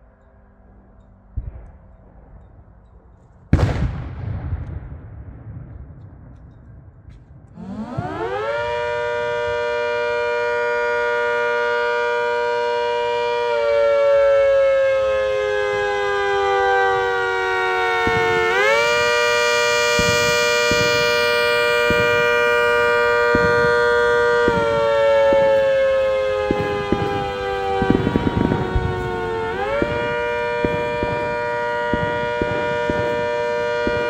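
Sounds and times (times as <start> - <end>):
rotating multi-tone siren: 7.6 - 34.0.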